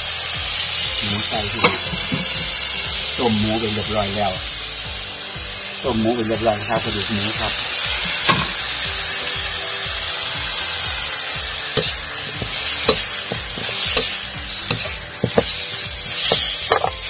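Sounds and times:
pork sizzling in hot oil: 0.0s - 17.0s
spatula scraping and knocking pan: 1.6s - 2.8s, 8.0s - 8.8s, 11.7s - 17.0s.

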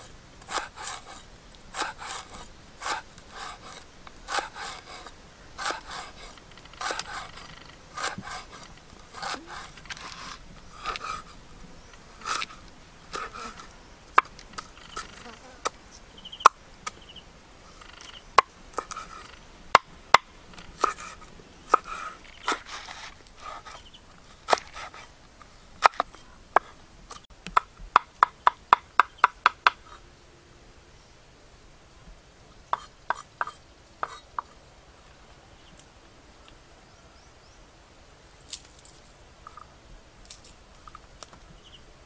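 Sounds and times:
cleaver chopping on wooden board: 8.0s - 8.6s.

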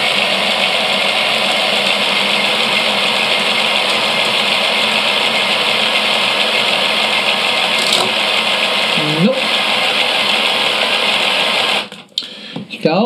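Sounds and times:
toy motor whirring: 1.0s - 8.3s.

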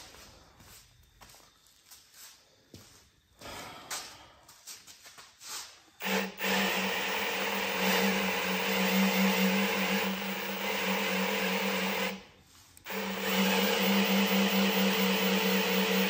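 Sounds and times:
electric drill running: 6.0s - 16.0s.

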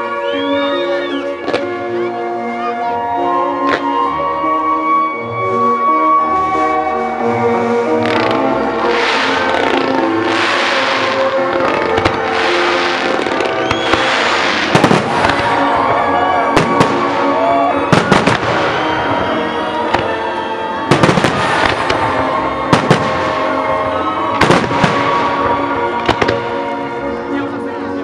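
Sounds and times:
loud music: 0.0s - 28.0s
firework shells bursting: 8.0s - 15.6s.

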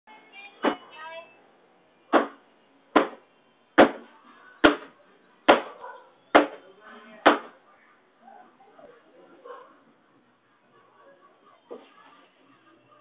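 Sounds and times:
sharp knocks: 2.1s - 2.4s, 3.0s - 3.2s, 6.3s - 6.6s.

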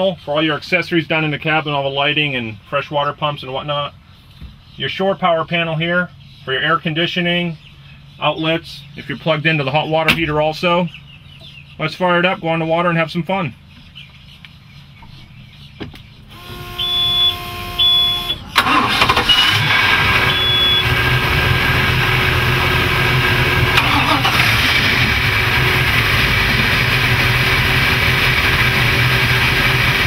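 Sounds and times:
boat engines idling: 16.2s - 30.0s
short electronic beeps: 16.3s - 19.6s, 20.2s - 21.0s.

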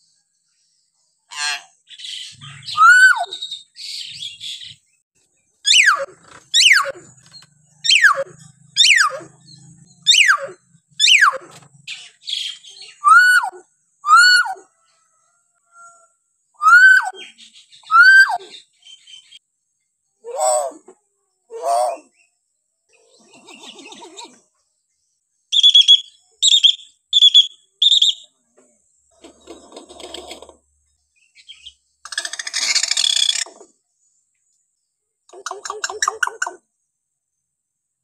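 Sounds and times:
harsh scratchy bird chatter: 5.6s - 10.4s, 29.1s - 30.6s, 31.5s - 33.7s, 35.3s - 36.6s.

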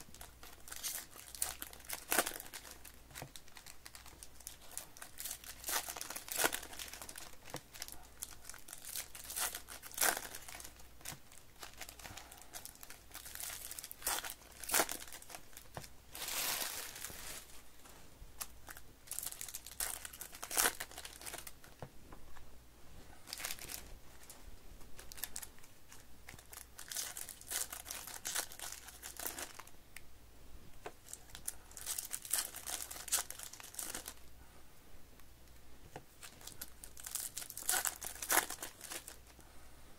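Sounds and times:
foil wrappers crinkling and tearing: 0.0s - 17.5s, 18.4s - 21.8s, 23.3s - 23.8s, 25.0s - 29.7s, 31.0s - 34.2s, 36.2s - 39.3s.

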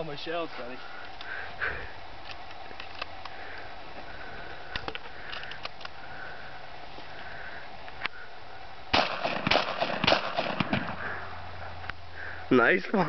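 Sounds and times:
shells loaded into shotgun: 2.2s - 3.4s, 4.7s - 6.0s.

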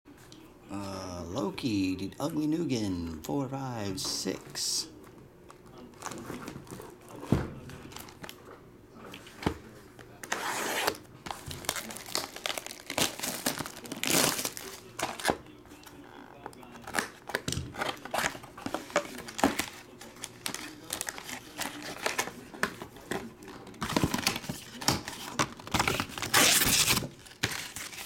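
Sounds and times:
plastic wrap tearing and crinkling: 10.3s - 15.4s, 16.7s - 22.6s, 23.5s - 28.0s.

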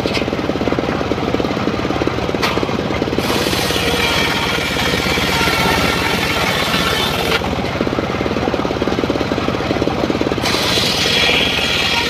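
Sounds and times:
engine running: 0.0s - 12.0s
circular saw ripping wood: 3.2s - 7.5s, 10.4s - 12.0s.

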